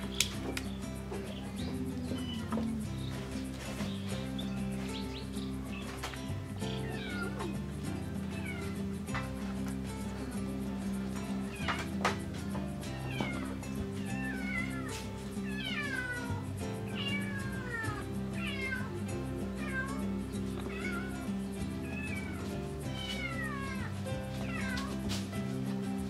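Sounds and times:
background music: 0.0 - 26.0
kitten mewing: 6.8 - 7.6, 13.1 - 20.0.

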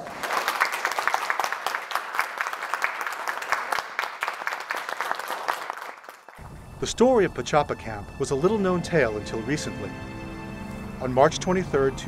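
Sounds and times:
crowd applause: 0.0 - 6.4.

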